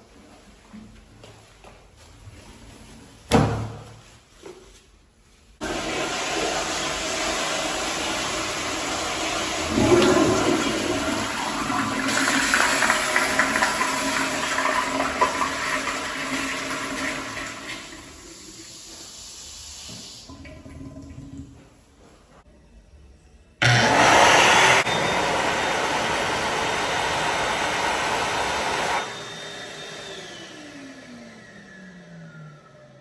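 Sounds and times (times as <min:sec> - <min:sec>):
toilet flushing water rush: 0:05.6 - 0:21.6.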